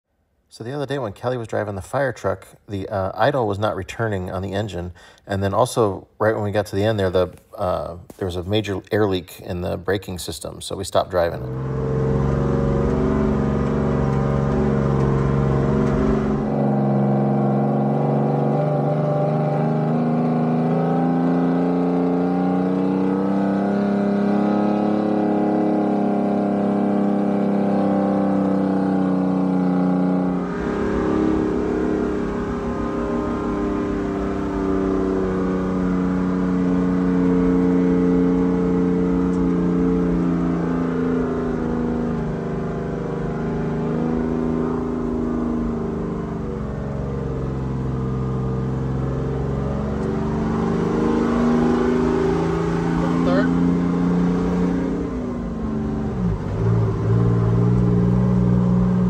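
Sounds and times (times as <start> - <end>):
diesel engine running: 11.3 - 19.0, 28.4 - 59.0.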